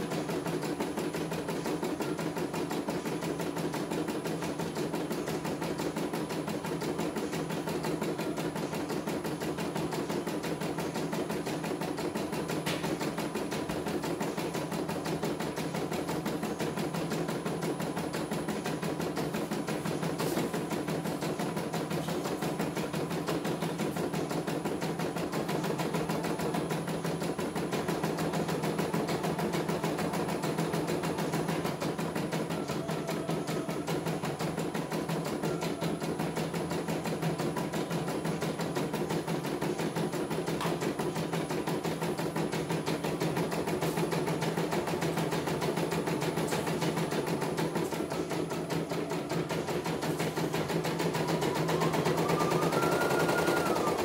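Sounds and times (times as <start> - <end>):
embroidery machine needle stitching: 0.0 - 54.0
motor hum: 4.3 - 54.0.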